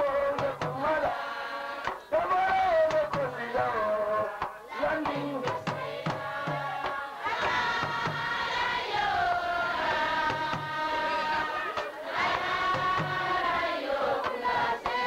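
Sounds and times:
drum strokes: 0.2 - 15.0
group of voices chanting: 4.6 - 15.0.

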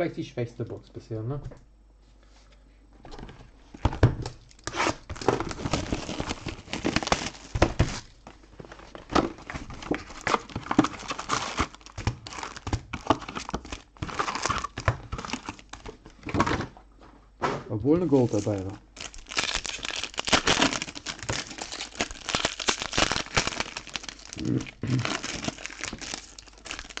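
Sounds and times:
packaging crinkling and tearing: 4.2 - 16.1, 18.1 - 27.0.

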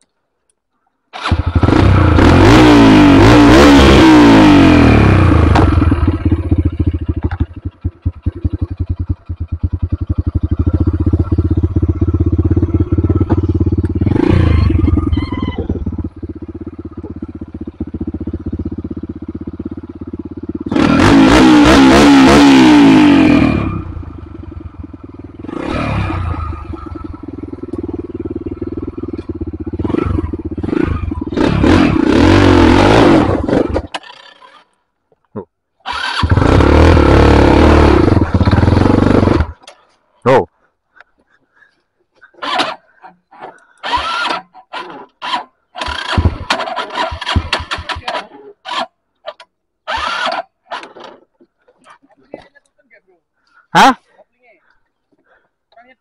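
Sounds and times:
dirt bike engine revving: 1.2 - 34.6, 35.8 - 39.8, 42.2 - 51.2
man talking: 40.2 - 40.6, 52.1 - 54.7.

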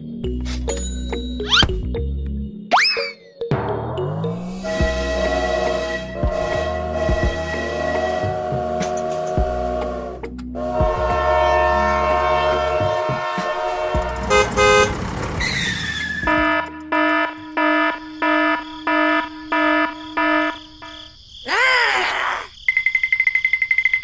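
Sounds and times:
sliding cartoon sound effect: 1.4 - 1.7, 2.7 - 3.2, 21.5 - 22.5
vehicle horn honking: 10.6 - 15.1, 15.9 - 20.6.

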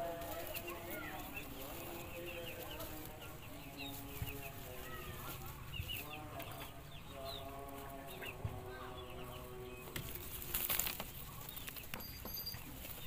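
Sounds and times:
wings flapping: 10.0 - 11.8.

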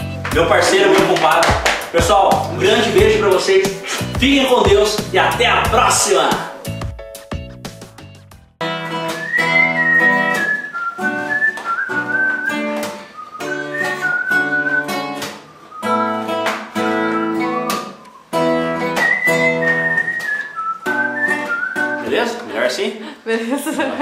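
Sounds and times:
acoustic guitar strumming: 0.0 - 22.4
man whistling a melody: 8.9 - 22.3.

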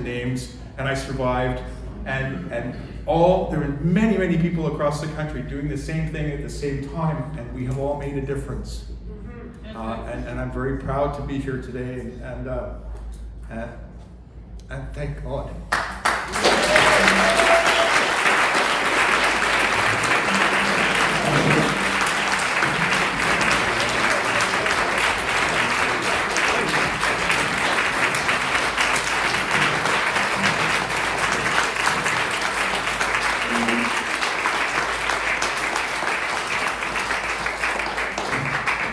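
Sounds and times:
audience applauding: 15.7 - 38.9.

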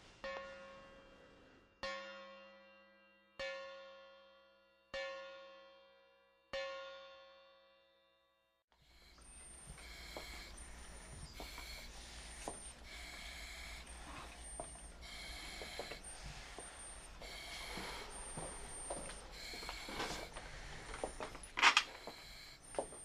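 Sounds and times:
heavy breathing through oxygen mask: 8.8 - 23.0.

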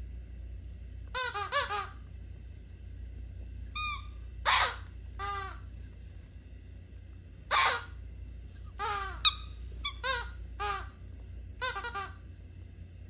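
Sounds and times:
rubber squeaky toy squeaking: 3.8 - 5.6, 7.5 - 7.9, 8.8 - 10.9, 11.6 - 12.1.

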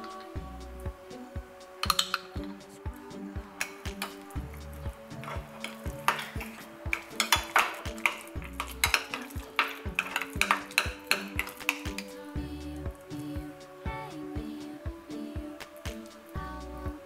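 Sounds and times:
background music with steady beat: 0.0 - 17.0
metal spoon clinking in glass mug: 1.8 - 2.4, 5.7 - 12.1.

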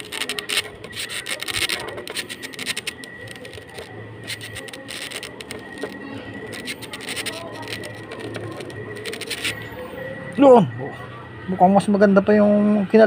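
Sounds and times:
marker scratching on styrofoam: 0.0 - 10.0.

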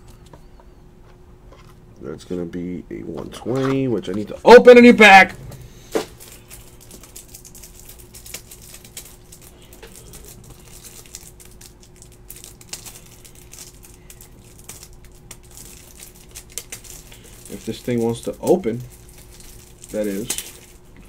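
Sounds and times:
faint steady hum: 0.0 - 21.0
plastic wrap crinkling: 3.4 - 21.0.

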